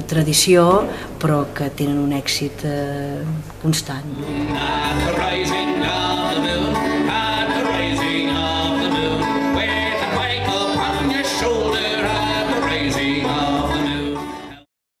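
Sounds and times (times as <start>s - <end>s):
strummed acoustic guitars: 4.1s - 14.7s
banjo: 4.2s - 14.6s
men singing: 4.2s - 14.7s.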